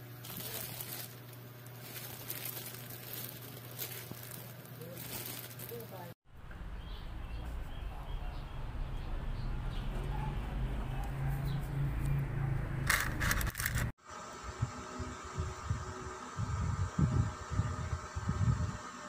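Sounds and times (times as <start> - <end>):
plastic packaging crinkling: 0.0 - 6.2, 12.9 - 13.9.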